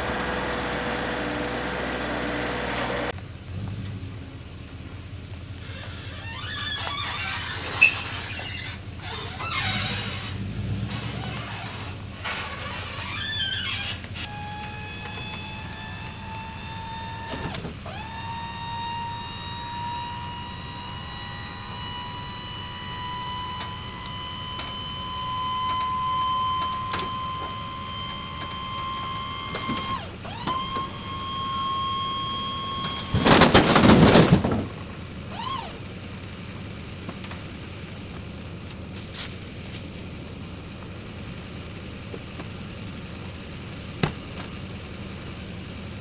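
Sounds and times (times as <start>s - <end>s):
electric hydraulic pump whining: 0.0s - 3.2s, 11.5s - 34.4s, 35.2s - 36.0s
logs clattering off trailer bed: 21.2s - 35.9s.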